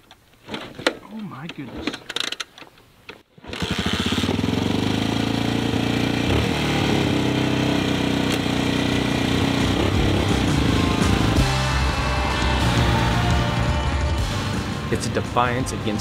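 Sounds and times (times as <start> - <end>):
motorcycle engine starting and idling: 3.4 - 15.6.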